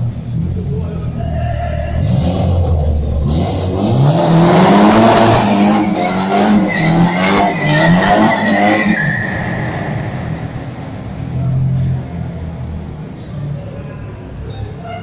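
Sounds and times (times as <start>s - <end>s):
car engine revving: 1.9s - 13.2s
tyres squealing: 5.4s - 11.6s.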